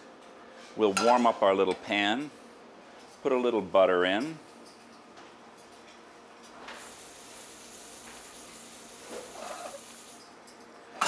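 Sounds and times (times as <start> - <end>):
butter hissing in a skillet: 6.8 - 10.2.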